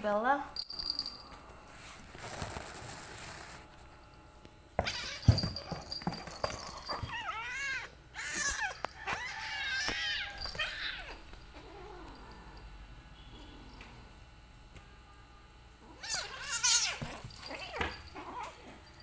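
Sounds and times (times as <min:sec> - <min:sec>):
cats scuffling on floor: 0:01.7 - 0:04.0
cat yowling: 0:04.8 - 0:05.3, 0:07.1 - 0:12.1, 0:15.9 - 0:18.5.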